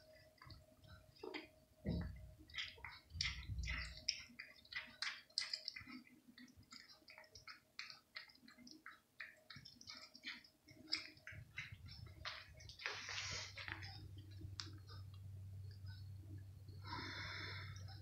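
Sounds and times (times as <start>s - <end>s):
cat chewing meat: 0.1s - 15.3s.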